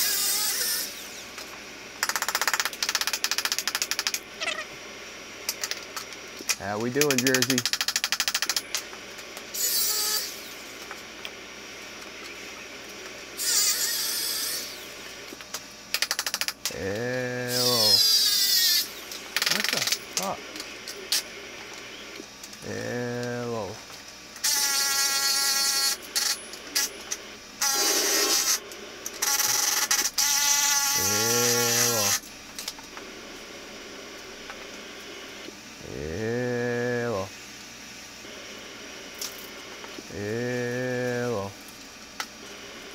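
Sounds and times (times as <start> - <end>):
radio static bursts: 6.6 - 8.8, 16.7 - 18.0, 29.2 - 32.2, 38.2 - 41.6
cordless drill motor whine: 9.5 - 10.7, 29.2 - 32.2.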